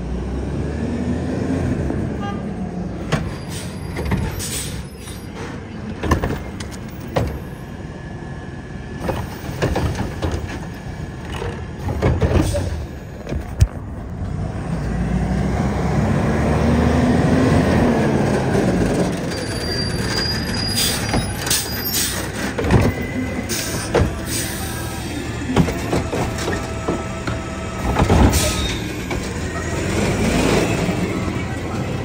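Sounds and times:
diesel engine revving: 0.0 - 4.9, 14.0 - 32.0
truck lifting arm knocks and clanks: 5.3 - 7.6, 9.0 - 13.8, 18.1 - 24.4, 25.4 - 30.6.

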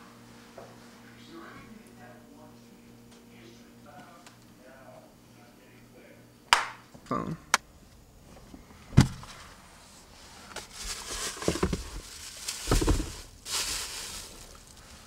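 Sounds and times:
plastic bag rustling: 9.3 - 15.0.

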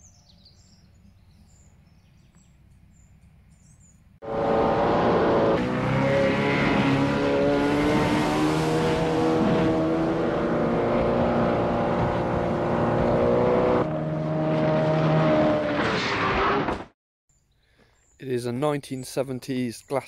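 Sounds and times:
speedboat engines at high speed: 4.2 - 15.4.

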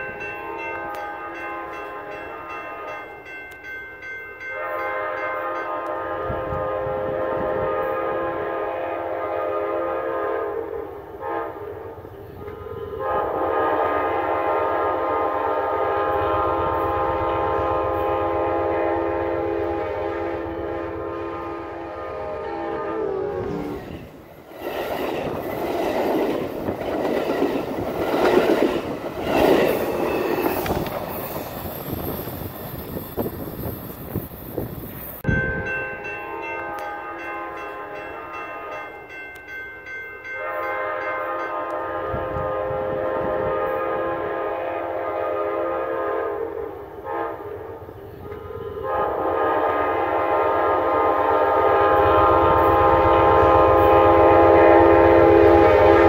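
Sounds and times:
train horn blasts: 0.0 - 3.3, 4.4 - 24.0, 35.2 - 39.0, 40.3 - 56.0.

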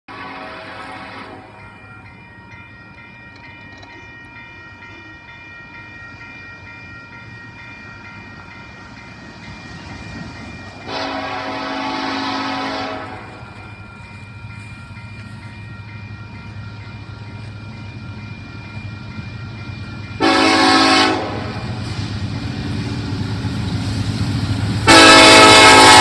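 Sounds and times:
locomotive air horn: 0.1 - 1.6, 10.8 - 13.4, 20.2 - 21.8, 24.8 - 26.0
freight train rumble: 0.1 - 26.0
railroad crossing bell ringing: 0.1 - 26.0.

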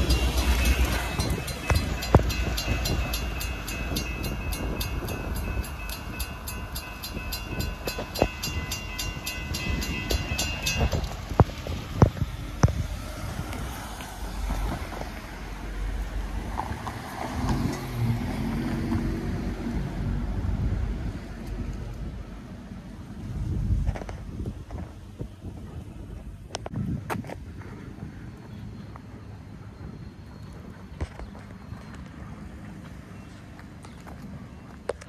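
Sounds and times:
railroad crossing bell ringing: 0.0 - 11.5
train wheel clacks on rails: 0.0 - 12.2
freight train rolling past: 0.0 - 21.1.

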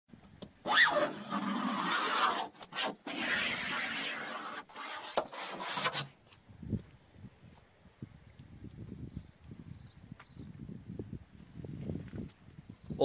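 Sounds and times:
metal tool scratching car door: 0.6 - 6.1.

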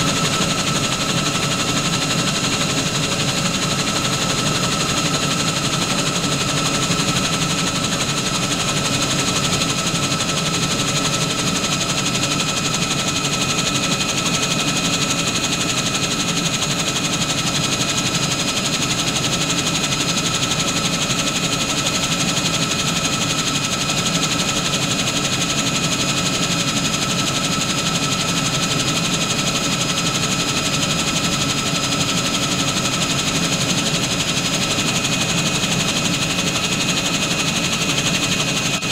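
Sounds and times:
helicopter engine and rotor drone: 0.0 - 38.9.

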